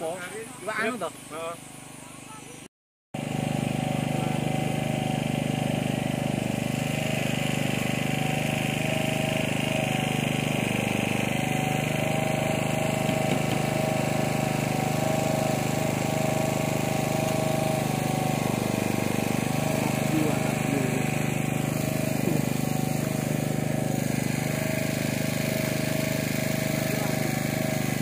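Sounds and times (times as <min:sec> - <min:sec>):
engine-like hum: 0:00.0 - 0:28.0.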